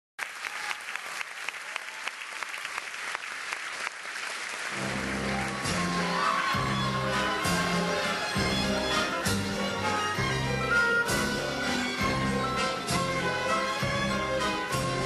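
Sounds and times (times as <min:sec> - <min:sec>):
audience applauding: 0:00.2 - 0:10.6
orchestra playing low figure: 0:04.7 - 0:15.0.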